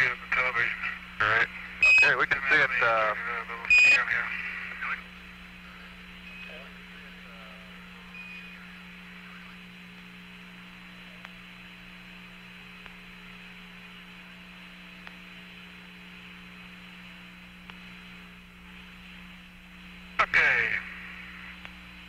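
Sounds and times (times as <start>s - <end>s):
radio hiss and hum: 0.0s - 22.0s
short radio beep: 1.8s - 2.2s.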